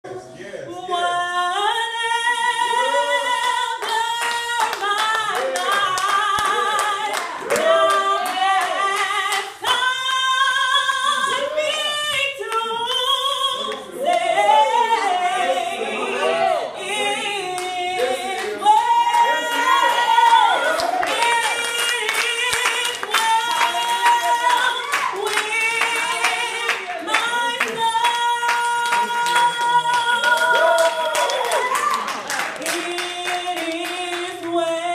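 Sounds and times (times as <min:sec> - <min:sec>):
voices singing along: 0:00.6 - 0:34.9
woman singing gospel amplified: 0:00.7 - 0:34.9
hands clapping: 0:03.4 - 0:09.9, 0:17.5 - 0:34.8.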